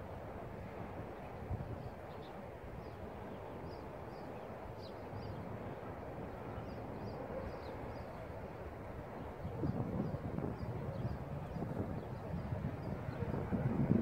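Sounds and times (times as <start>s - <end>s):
wind rumbling on microphone: 0.0s - 14.0s
small birds chirping: 1.2s - 5.6s, 6.3s - 8.4s, 9.1s - 13.4s.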